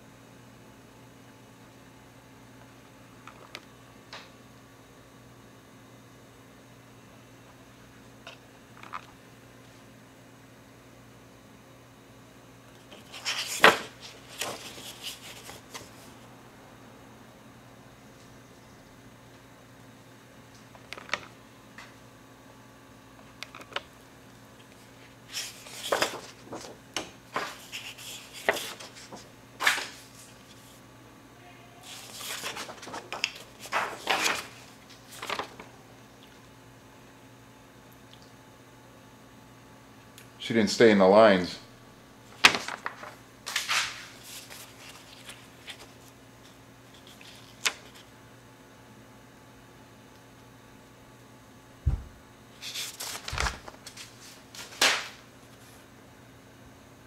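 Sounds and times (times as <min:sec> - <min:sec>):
low steady hum: 0:00.0 - 0:57.0
paper rustling and snapping: 0:12.8 - 0:16.1, 0:24.6 - 0:30.8, 0:31.8 - 0:35.7, 0:42.4 - 0:46.1, 0:46.9 - 0:48.1, 0:52.6 - 0:55.3.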